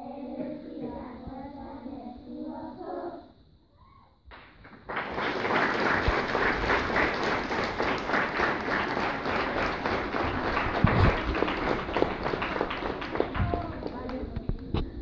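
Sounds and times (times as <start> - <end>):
audience applauding: 4.3 - 14.6.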